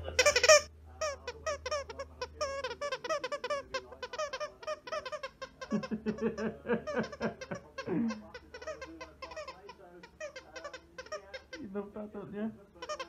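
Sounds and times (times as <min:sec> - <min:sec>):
squeaky dog toy squeaking: 0:00.0 - 0:11.6, 0:12.8 - 0:13.0
person laughing: 0:05.6 - 0:08.3.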